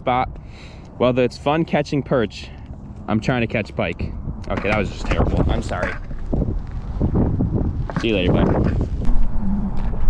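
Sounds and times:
wind buffeting microphone: 3.9 - 10.0.

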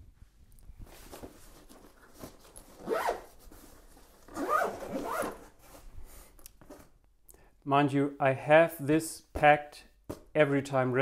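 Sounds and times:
backpack zipper being pulled shut: 4.3 - 5.4.

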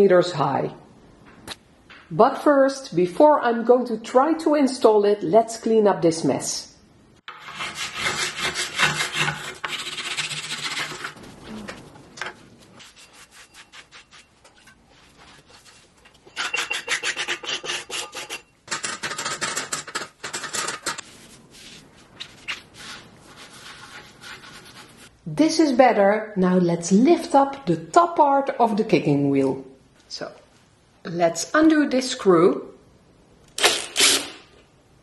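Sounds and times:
scraper rasping dried clay: 7.3 - 11.8, 12.6 - 25.1.

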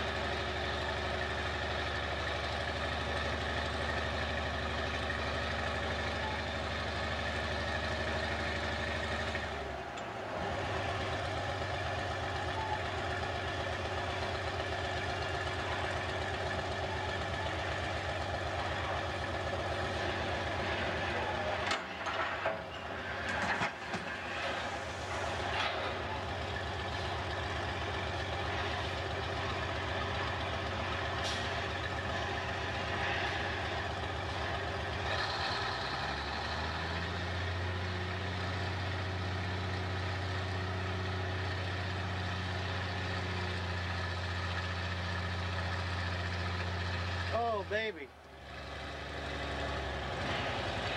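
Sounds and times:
diesel engine running: 0.0 - 50.9
metal clanks and knocks: 20.6 - 26.0.

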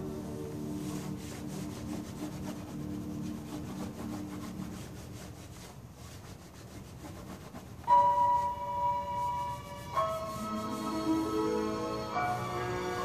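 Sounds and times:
music with held tone: 0.0 - 2.2, 7.8 - 13.0
chalk rubbing on paper: 0.0 - 11.4
bell-like chord: 7.9 - 13.0.

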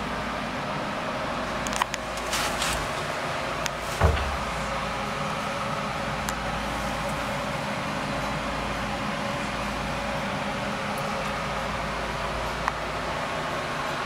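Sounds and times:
water pumps whirring hum: 0.0 - 14.0
short knock: 3.9 - 4.6.

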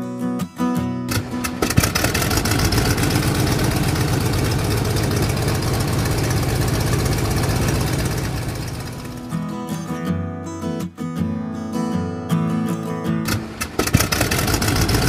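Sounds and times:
tractor engine chugging: 1.1 - 9.4, 13.3 - 15.0.

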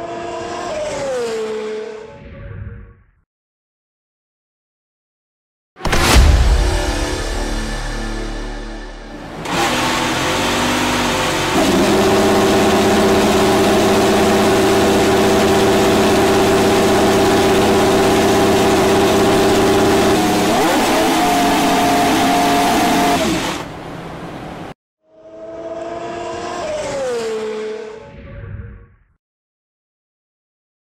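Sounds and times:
race car engine starting and idling: 8.6 - 24.7
race car engine revving: 9.1 - 24.7.

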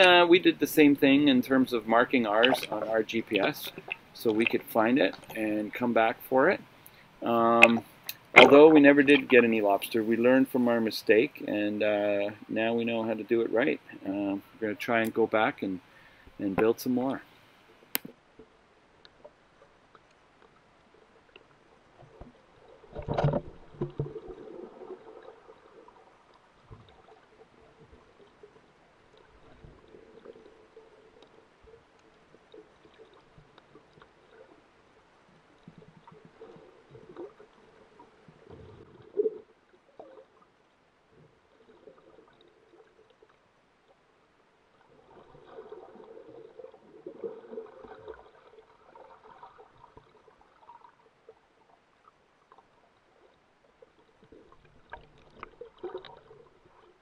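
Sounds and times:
underwater swishing and gurgling: 0.0 - 57.0
sharp knocks underwater: 2.3 - 4.6, 7.6 - 9.3, 22.1 - 24.6.

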